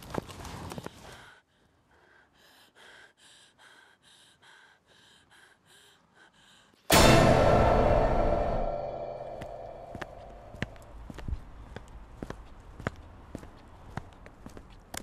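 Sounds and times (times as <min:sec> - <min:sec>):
woman breathing quickly: 0:00.7 - 0:06.9
loud ringing hit: 0:06.9 - 0:10.9.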